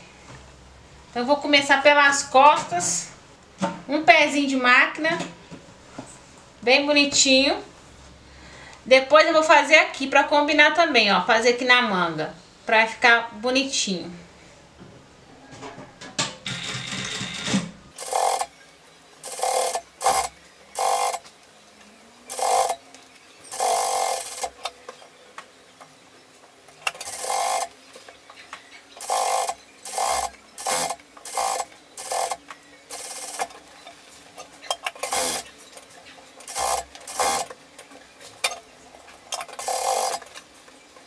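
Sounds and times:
sewing machine running in bursts: 18.0 - 18.5, 19.2 - 21.3, 22.3 - 22.9, 23.5 - 24.7, 26.8 - 27.8, 29.0 - 33.6, 34.7 - 35.5, 36.4 - 37.6, 39.4 - 40.4.

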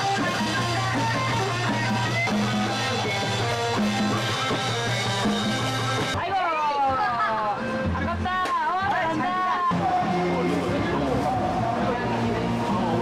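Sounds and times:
drum kit: 0.0 - 6.3
conga drums: 0.0 - 13.0
electric guitar: 0.0 - 13.0.

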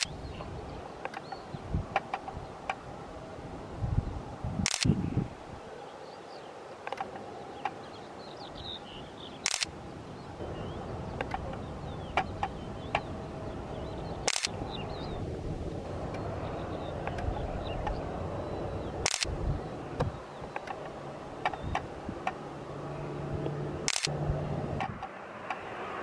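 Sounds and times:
outdoor background noise: 0.0 - 26.0
small clicks: 4.6 - 4.9, 9.4 - 9.7, 14.2 - 14.6, 19.0 - 19.3, 23.4 - 24.1
camera shutter firing: 4.6 - 5.0, 9.4 - 9.7, 14.3 - 14.6, 19.0 - 19.3, 23.9 - 24.1.

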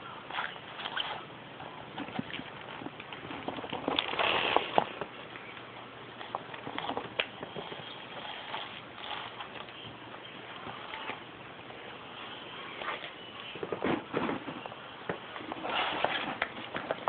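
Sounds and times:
plastic bag crinkling: 2.2 - 5.1.

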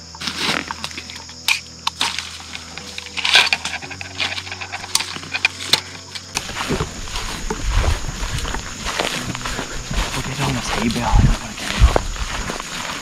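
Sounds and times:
rifle gear handling clicks: 0.8 - 6.5.

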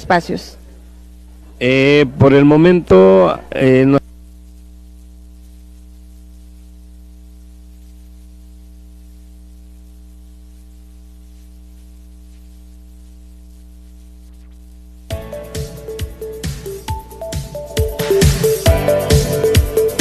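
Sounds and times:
electrical mains hum: 0.0 - 20.0
electronic music with a beat: 15.1 - 20.0.

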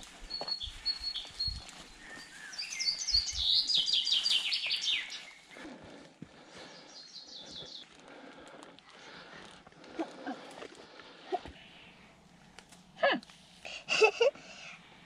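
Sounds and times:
songbird singing: 0.1 - 5.8, 6.4 - 8.3.

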